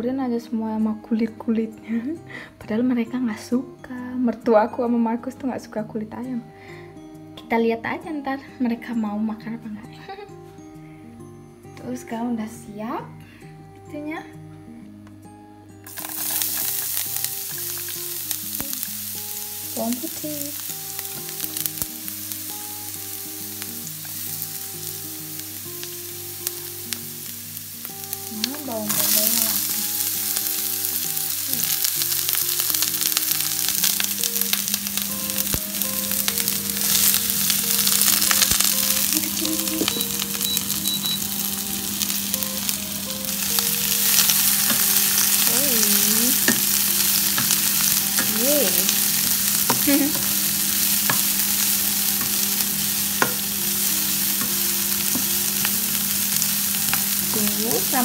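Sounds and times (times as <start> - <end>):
garlic sizzling in oil: 15.8 - 58.0
spatula scraping frying pan: 15.9 - 18.2.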